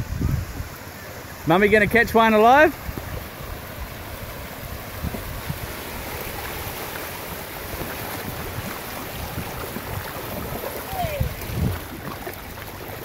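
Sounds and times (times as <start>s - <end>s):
wind buffeting microphone: 0.0s - 1.1s, 1.7s - 13.0s
small waves washing on beach: 0.0s - 13.0s.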